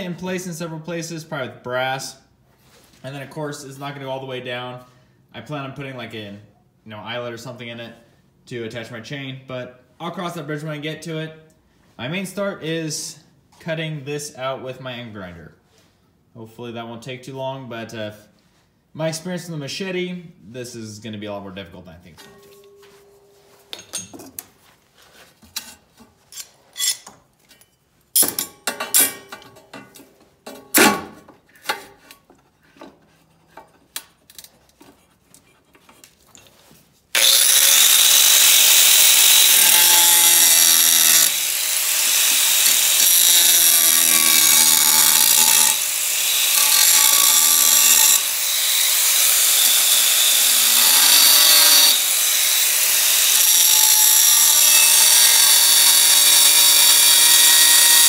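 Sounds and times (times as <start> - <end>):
tools clicking and knocking: 25.4 - 36.5
angle grinder cutting steel: 37.1 - 58.0.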